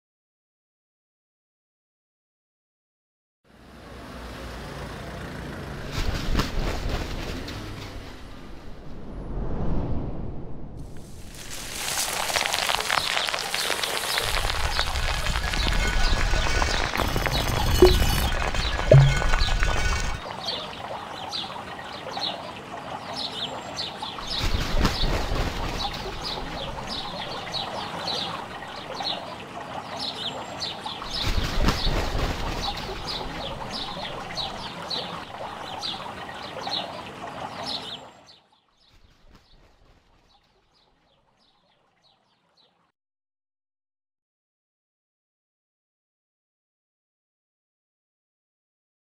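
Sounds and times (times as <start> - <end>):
fountain splashing: 11.0 - 38.2
birds chirping: 13.1 - 39.0.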